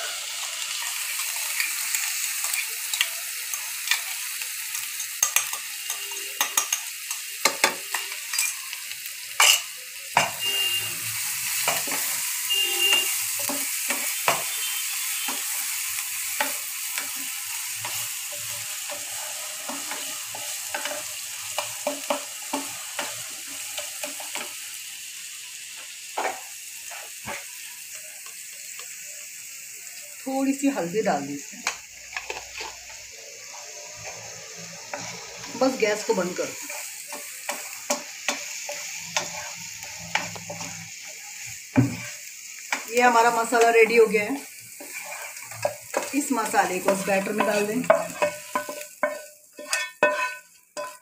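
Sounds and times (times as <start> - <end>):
spices sizzling in hot oil: 0.0 - 51.0
spatula scraping pan: 9.4 - 24.5, 31.6 - 51.0.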